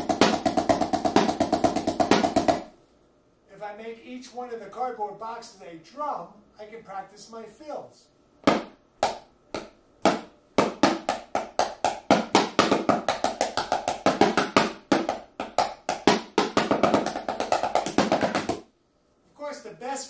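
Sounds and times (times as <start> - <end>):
sticks drumming on cardboard boxes: 0.0 - 2.7, 8.4 - 18.7.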